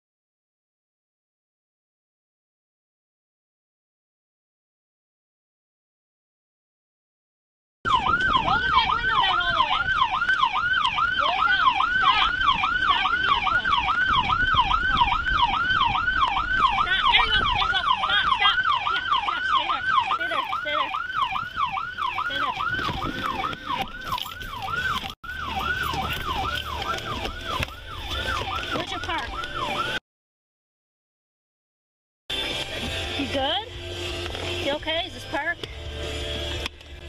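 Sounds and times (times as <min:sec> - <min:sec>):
police siren yelping: 0:07.9 - 0:30.0
road and wind noise: 0:07.9 - 0:30.0, 0:32.3 - 0:37.0.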